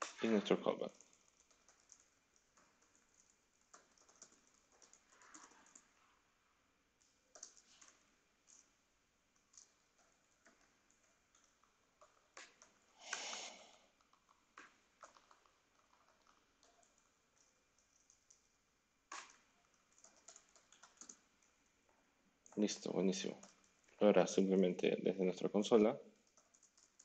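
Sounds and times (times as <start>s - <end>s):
typing on computer keyboard: 0.8s - 6.0s, 7.0s - 8.7s, 9.4s - 12.8s, 14.0s - 18.5s, 19.1s - 21.6s, 22.4s - 23.9s, 26.1s - 27.0s.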